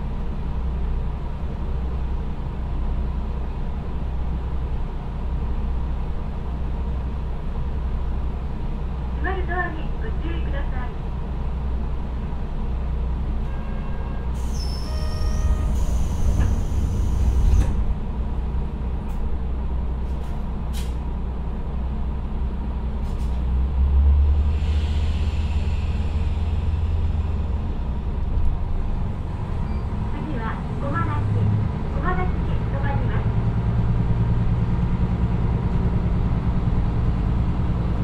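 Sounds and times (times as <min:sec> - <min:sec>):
diesel engine idling and revving: 0:15.7 - 0:38.0.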